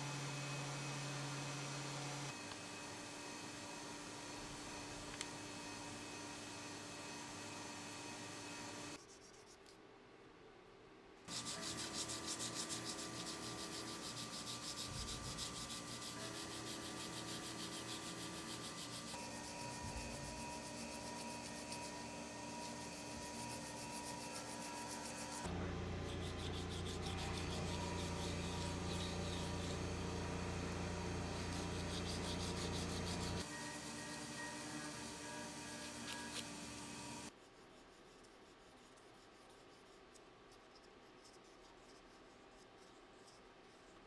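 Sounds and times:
steady low hum: 11.2 - 37.3
sandpaper rubbing on metal: 11.3 - 44.0.

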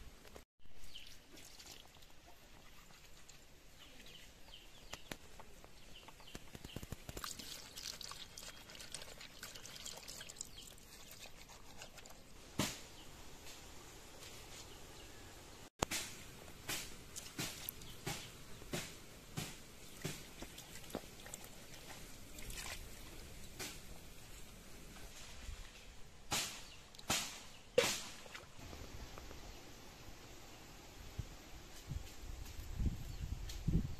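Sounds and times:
wet scrubbing on stone: 6.8 - 12.3
knock or splash: 26.3 - 28.6.

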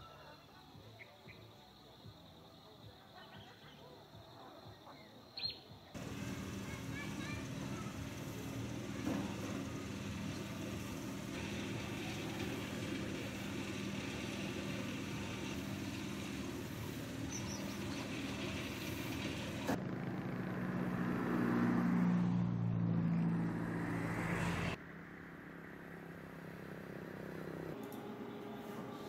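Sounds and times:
louder engine: 6.0 - 24.8
engine running steadily: 6.0 - 29.0.

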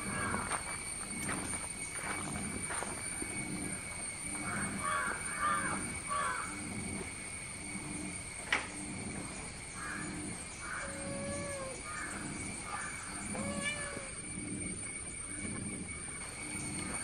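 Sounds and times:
kitten meowing: 13.3 - 14.1.

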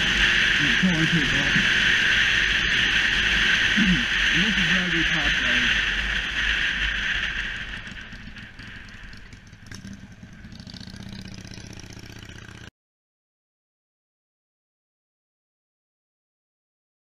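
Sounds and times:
wind rushing: 0.0 - 10.5
motorcycle engine running: 0.0 - 12.7.

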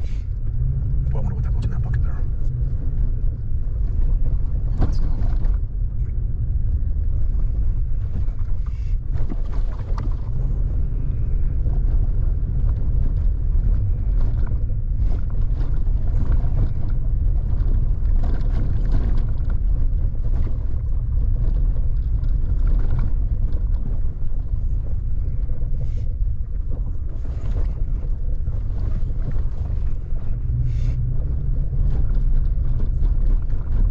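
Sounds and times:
vehicle rumble on dirt road: 0.0 - 33.9
wind buffeting microphone: 0.0 - 33.9.

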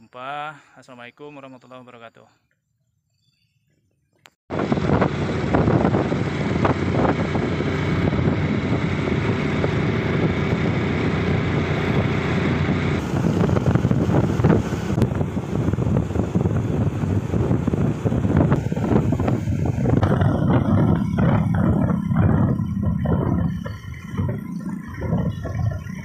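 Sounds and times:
motorcycle engine running: 4.5 - 26.0
wind rushing over microphone: 4.5 - 26.0.

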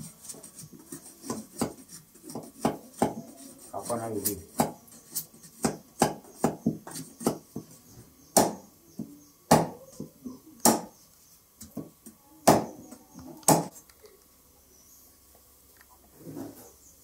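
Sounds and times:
knife chopping wood: 4.5 - 4.8, 5.6 - 7.4, 8.4 - 8.6, 10.6 - 10.9, 13.5 - 13.7.

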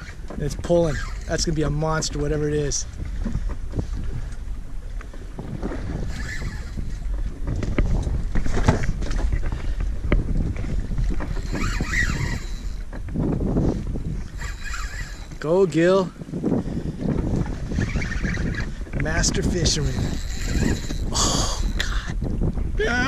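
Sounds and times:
fishing reel clicks and knocks: 0.0 - 1.8, 11.0 - 13.1, 14.2 - 15.4, 17.8 - 22.2
low rumble of boat: 0.0 - 23.0
wind buffeting microphone: 0.0 - 23.0.

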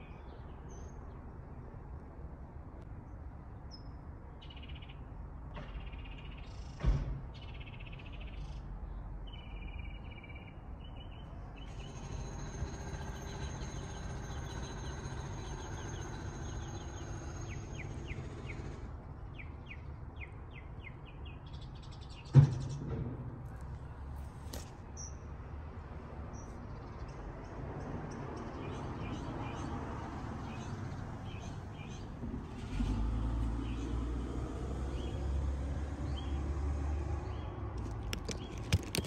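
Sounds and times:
small birds chirping: 37.2 - 39.0
sharp thumps: 37.8 - 39.0.

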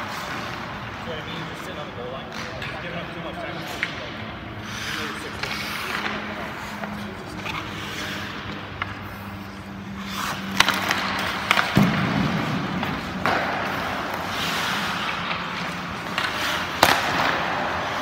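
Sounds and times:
skates scraping on ice: 0.0 - 18.0
sticks hitting pucks: 0.0 - 18.0
pucks striking goalie and net: 10.0 - 18.0.

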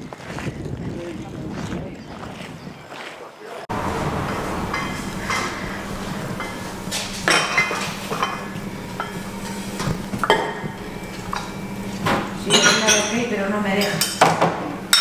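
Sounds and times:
steady low hum: 3.7 - 15.0
crockery and cutlery clinking: 3.8 - 15.0.

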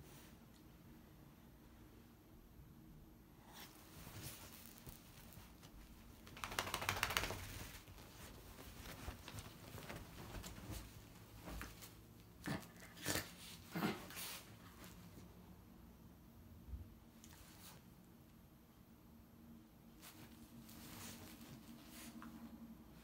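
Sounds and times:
diaper rustling and crinkling: 3.6 - 12.1.

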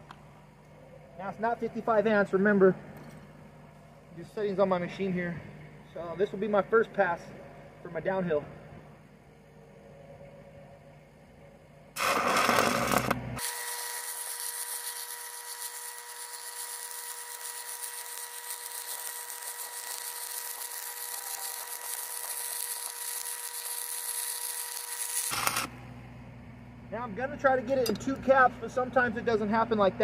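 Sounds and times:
constant welding whine: 0.0 - 30.0
welding arc sizzling crackle: 11.9 - 25.8
welding rod strike crackle: 12.0 - 25.7.

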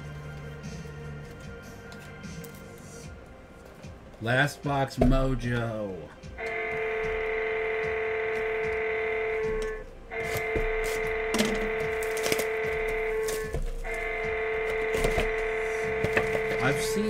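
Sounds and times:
background music steady note: 0.0 - 17.0
packs clicking and crackling: 9.6 - 17.0.

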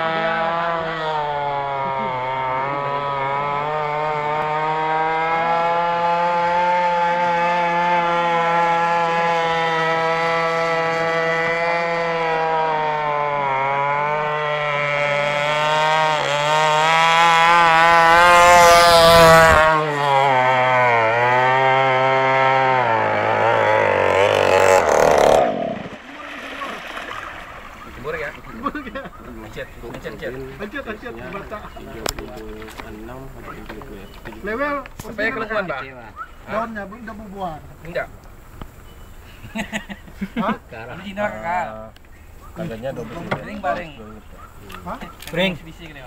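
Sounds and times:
two-stroke boat engine running: 0.0 - 34.6.

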